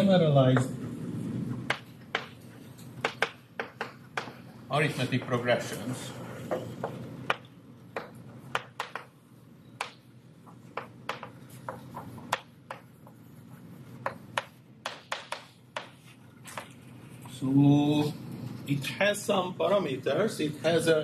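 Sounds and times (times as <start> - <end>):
faint room hum: 0.0 - 21.0
writing tool tapping and scraping: 1.6 - 5.4, 6.3 - 9.2, 9.8 - 17.4.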